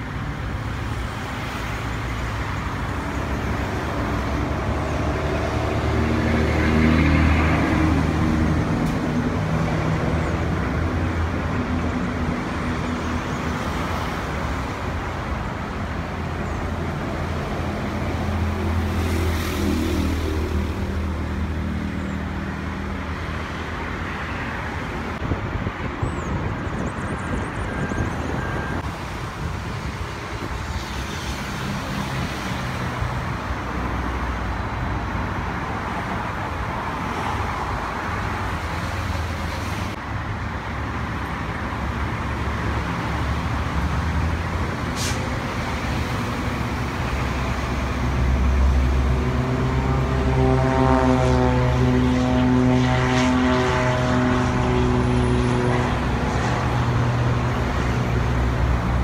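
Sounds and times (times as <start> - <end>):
traffic noise: 0.0 - 59.0
low engine hum: 47.3 - 59.0.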